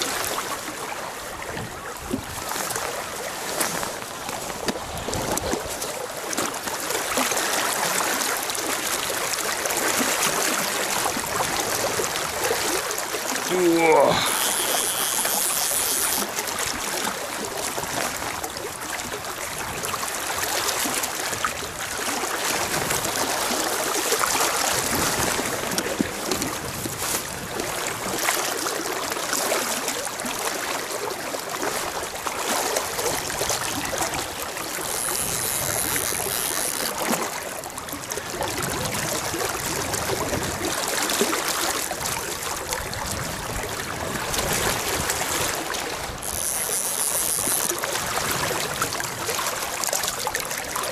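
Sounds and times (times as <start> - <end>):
river water rushing: 0.0 - 25.8.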